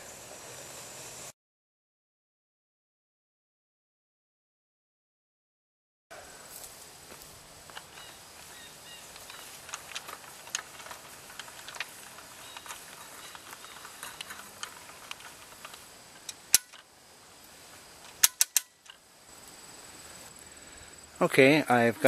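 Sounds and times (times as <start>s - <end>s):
metallic clicking of winch: 7.7s - 16.9s, 18.0s - 19.0s
sharp metal clicks: 7.7s - 16.9s, 18.0s - 19.0s.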